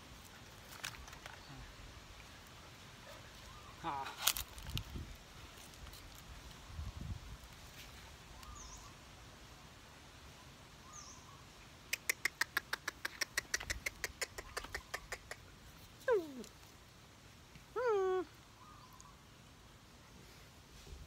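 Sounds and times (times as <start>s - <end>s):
rapid chirping clicks: 12.0s - 15.4s.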